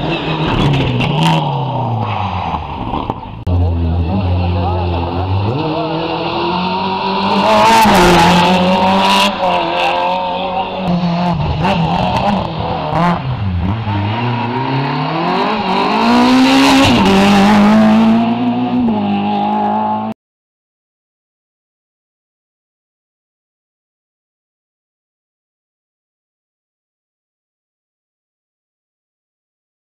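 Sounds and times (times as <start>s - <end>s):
rally car engines revving: 0.0s - 20.2s.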